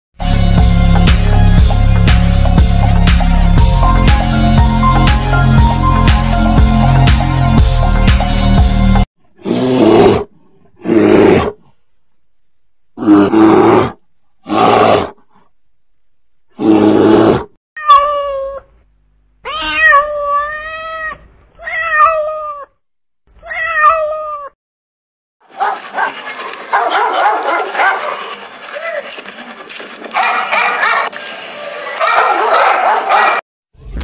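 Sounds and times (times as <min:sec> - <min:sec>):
bear growling: 0:09.4 - 0:11.8, 0:13.0 - 0:15.5, 0:16.5 - 0:17.5
cat meowing: 0:19.4 - 0:22.8, 0:23.4 - 0:24.6.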